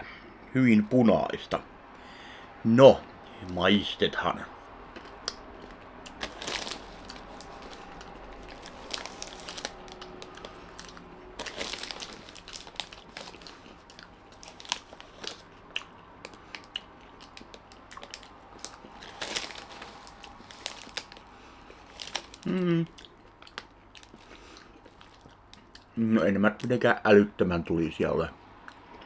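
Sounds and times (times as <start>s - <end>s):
crunching and chewing snack sticks: 4.8s - 26.8s, 28.6s - 29.0s
snack bag crinkling: 4.9s - 25.8s.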